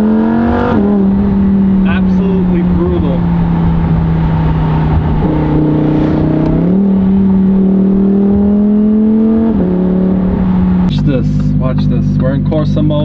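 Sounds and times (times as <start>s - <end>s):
sports car engine revving: 0.0s - 13.0s.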